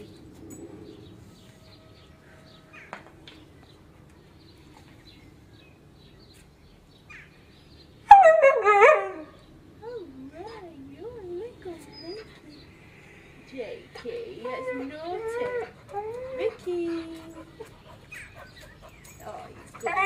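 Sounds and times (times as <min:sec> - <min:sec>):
dog whining: 0:14.4 - 0:18.4.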